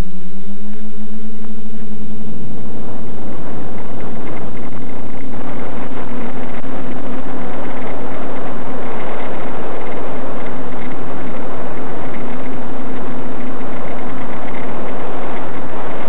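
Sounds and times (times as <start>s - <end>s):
quadcopter drone droning: 0.0s - 16.0s
wind rush and hiss: 0.0s - 16.0s.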